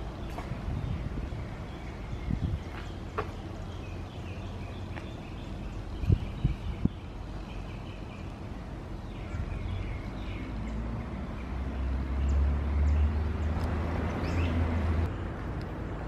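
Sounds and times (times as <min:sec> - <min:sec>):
birds chirping: 0:00.0 - 0:16.0
vehicle rumbling past: 0:03.5 - 0:16.0.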